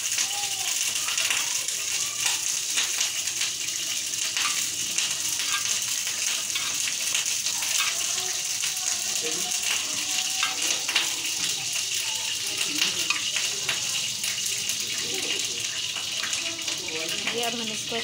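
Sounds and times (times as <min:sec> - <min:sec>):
metal spoon scraping tin can: 0:05.4 - 0:05.8.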